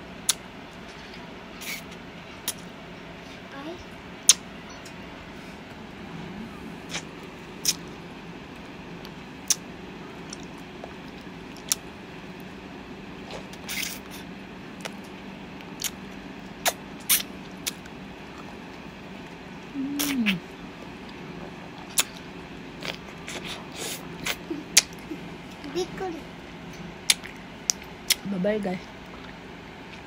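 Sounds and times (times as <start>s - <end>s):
steady low hum: 0.0s - 30.0s
biting and licking ice cream: 9.0s - 9.6s, 13.3s - 18.6s, 21.0s - 25.1s.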